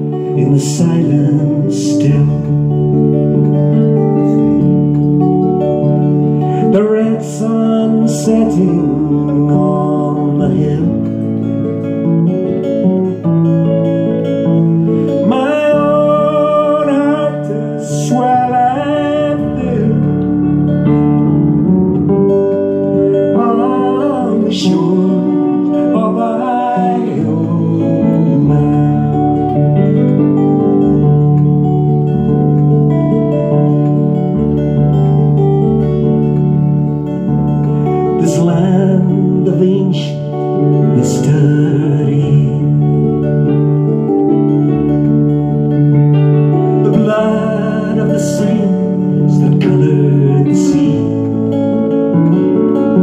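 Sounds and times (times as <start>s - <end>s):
man singing: 0.0s - 4.4s, 6.3s - 12.1s, 14.8s - 20.9s, 22.8s - 31.2s, 37.6s - 44.1s, 46.4s - 53.0s
acoustic guitar: 0.0s - 53.0s
electric keyboard: 0.0s - 53.0s.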